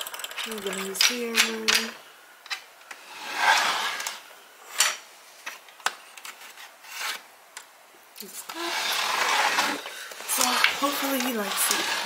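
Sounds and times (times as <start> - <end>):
sharp wooden clicks: 0.0 - 1.9
wooden parts rubbing and knocking: 0.0 - 7.2, 8.5 - 12.0.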